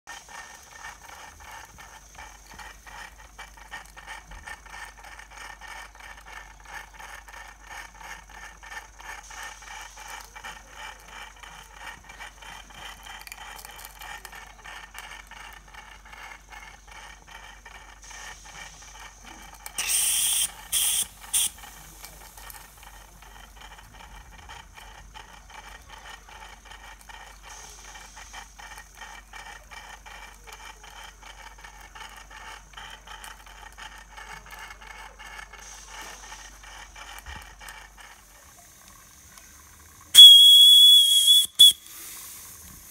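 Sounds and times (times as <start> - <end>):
mechanical clatter: 0.1 - 41.8
steam engine exhaust beats: 0.1 - 42.9
steam whistle blasts: 19.8 - 21.5, 40.2 - 42.1.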